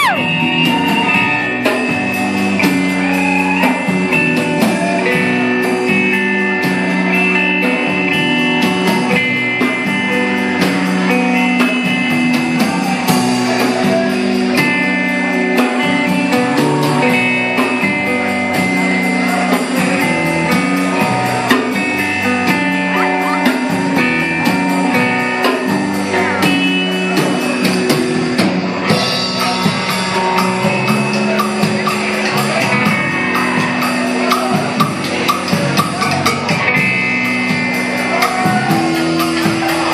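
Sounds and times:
live rock band: 0.0s - 39.9s
fast cymbal beat: 25.7s - 36.5s.

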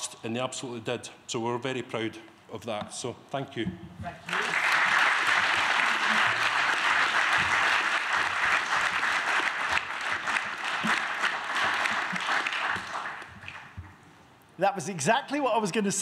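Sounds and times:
audience applauding: 4.2s - 13.8s.

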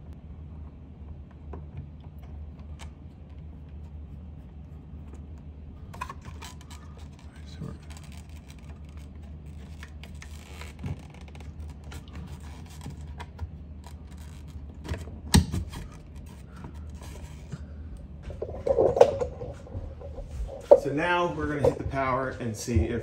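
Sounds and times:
plastic scraping on plasterboard: 6.0s - 14.9s, 18.3s - 20.8s.

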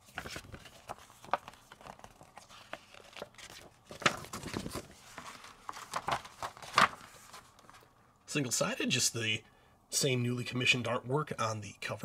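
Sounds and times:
sharp paper crackles: 0.0s - 7.8s
paper crinkling and rustling: 0.0s - 7.9s.

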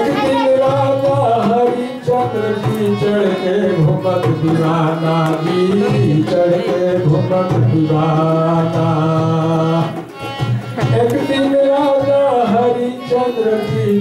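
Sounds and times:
person singing: 0.0s - 14.0s.

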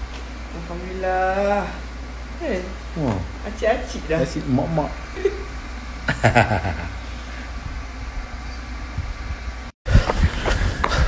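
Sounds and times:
low room hum: 0.0s - 11.0s
voice: 2.4s - 5.0s.

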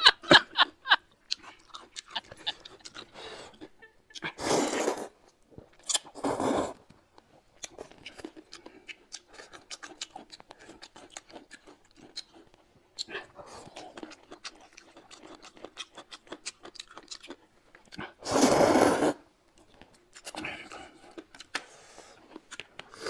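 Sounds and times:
wet chewing sounds: 1.2s - 4.4s, 7.2s - 18.2s, 19.5s - 23.0s
person slurping noodles: 4.2s - 5.2s, 6.0s - 6.8s, 18.2s - 19.2s.

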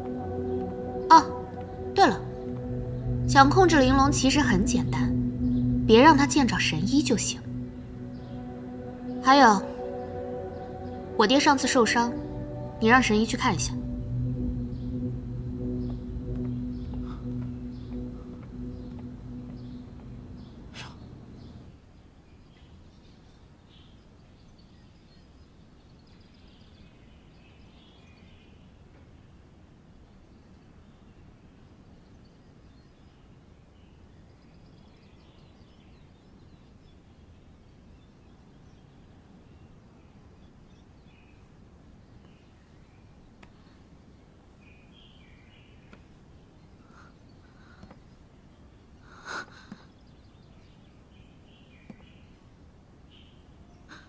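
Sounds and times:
low steady hum: 0.0s - 21.7s
low steady hiss: 0.0s - 54.0s
faint bird chirps: 0.9s - 21.7s, 44.6s - 54.0s.

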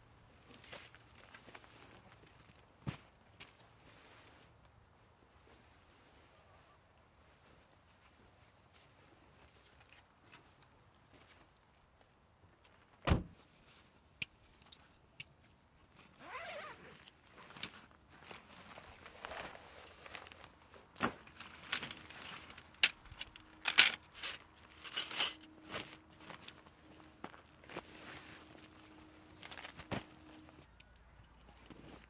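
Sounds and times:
car door shutting: 13.1s - 13.3s
nylon bag rustling: 16.1s - 30.7s.

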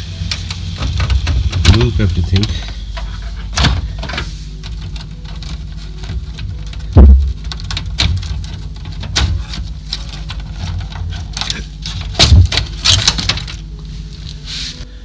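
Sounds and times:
steady low hum: 0.0s - 15.0s
tools knocking and rattling: 0.2s - 13.7s.

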